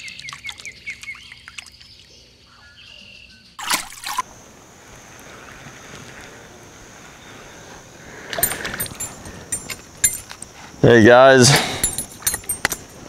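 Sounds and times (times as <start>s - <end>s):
songbirds chirping: 0.0s - 3.6s, 4.3s - 13.0s
outdoor hiss: 3.7s - 13.0s.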